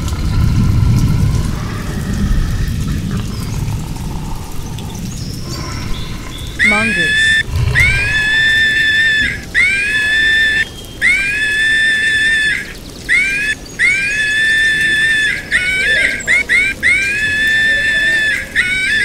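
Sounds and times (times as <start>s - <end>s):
mongoose chirps: 5.4s - 19.0s
mongoose squealing: 5.5s - 19.0s.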